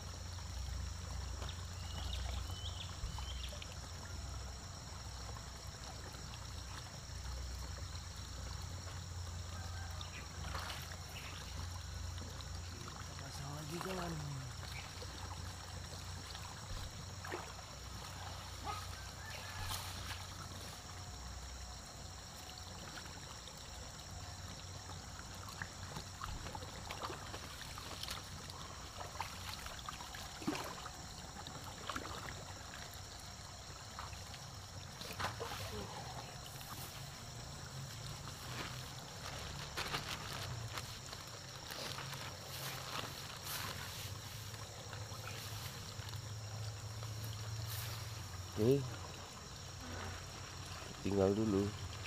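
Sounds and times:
creek water trickling: 0:00.0 - 0:52.0
small splashes of hands in water: 0:10.1 - 0:20.9, 0:25.2 - 0:33.0, 0:33.8 - 0:51.0
grass rustling: 0:35.0 - 0:48.5.

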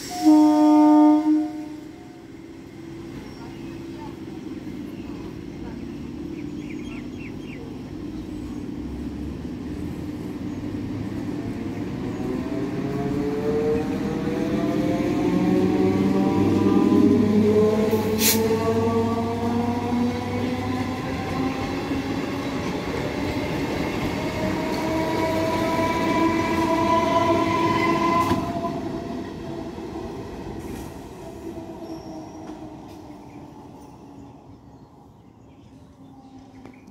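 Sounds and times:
train wheels on rails: 0:02.3 - 0:34.2.

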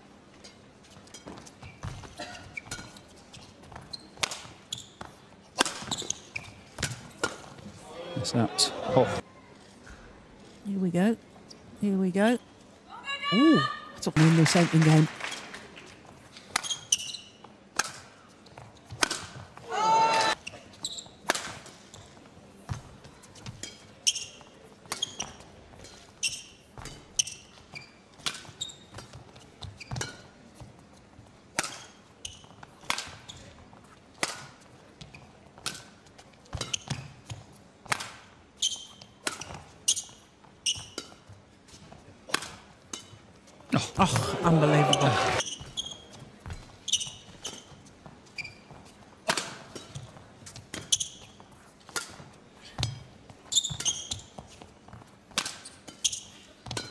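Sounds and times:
shoes squeaking on court: 0:00.4 - 0:07.7, 0:16.1 - 0:17.6, 0:20.3 - 0:37.6, 0:38.6 - 0:56.9
rackets striking shuttlecock: 0:55.3 - 0:56.9.

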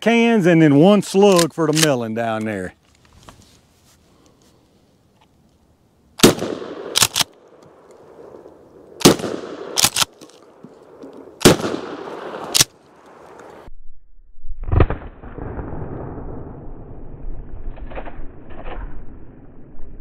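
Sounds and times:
shotgun shots: 0:06.2 - 0:07.4, 0:09.0 - 0:10.2, 0:11.4 - 0:12.8.

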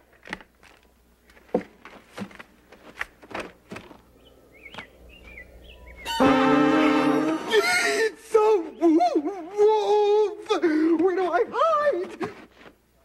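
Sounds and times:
held cry of alarm: 0:06.2 - 0:10.4.

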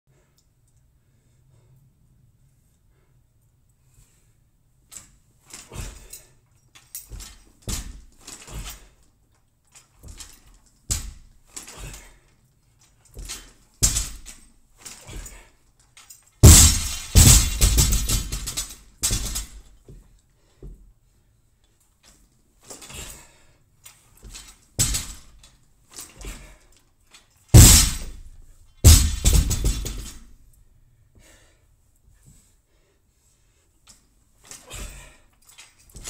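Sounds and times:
barbell crashing on floor: 0:13.2 - 0:14.3, 0:16.4 - 0:19.6, 0:24.8 - 0:25.3, 0:27.5 - 0:30.3
barbell plates knocking: 0:16.4 - 0:18.5.

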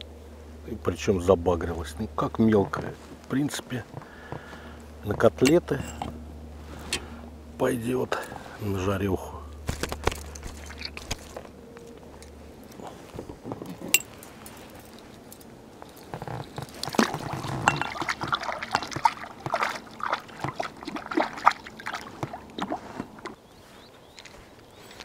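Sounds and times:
fish splashing and thrashing: 0:09.6 - 0:11.6, 0:14.8 - 0:23.4
water sloshing and dripping: 0:14.5 - 0:23.4.

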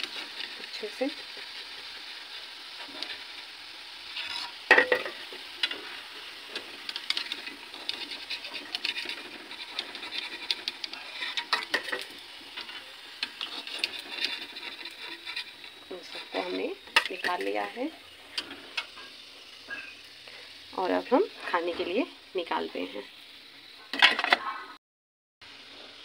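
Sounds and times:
deep-frying sizzle: 0:00.0 - 0:24.8, 0:25.4 - 0:26.0
ladle scraping a pan: 0:04.0 - 0:20.0.

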